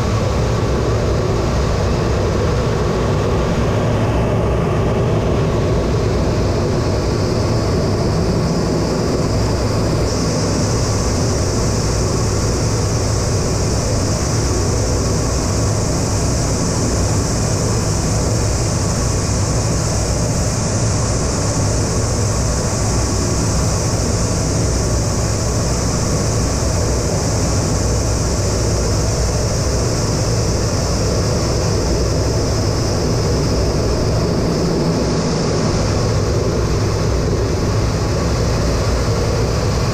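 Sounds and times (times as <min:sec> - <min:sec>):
high engine whine: 0:00.0 - 0:39.9
jet engines droning in cockpit: 0:00.0 - 0:39.9.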